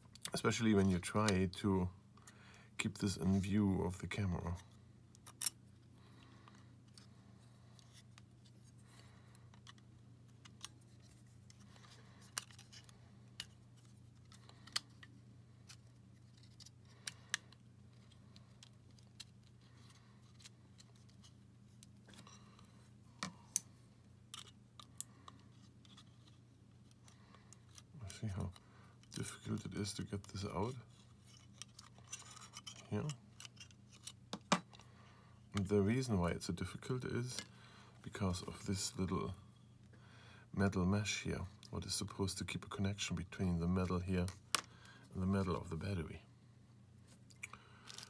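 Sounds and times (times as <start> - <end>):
steady low hum: 0.0 - 48.0
metal tools clicking and scraping: 31.3 - 34.1.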